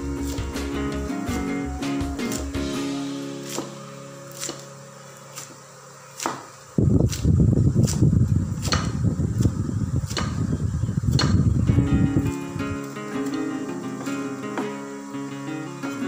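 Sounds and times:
cleaver chopping on wooden board: 3.4 - 4.7, 6.2 - 6.5, 8.6 - 9.0, 10.1 - 10.4, 11.1 - 11.5.

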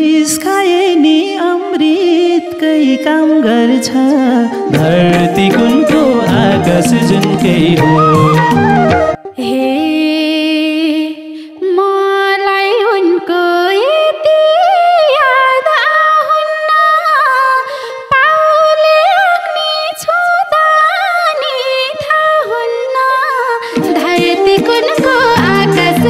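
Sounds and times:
sliding lead melody: 3.8 - 10.6, 23.6 - 26.0
band accompaniment: 4.7 - 9.2.

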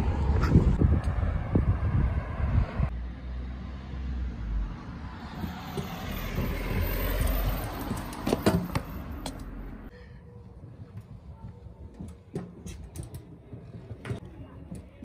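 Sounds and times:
scooter wheels rumbling over concrete: 5.5 - 9.5, 10.4 - 15.0.

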